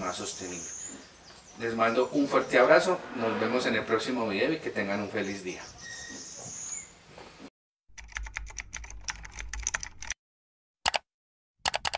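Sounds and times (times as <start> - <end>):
rapid keyboard typing clicks: 8.0 - 10.2, 11.6 - 11.9.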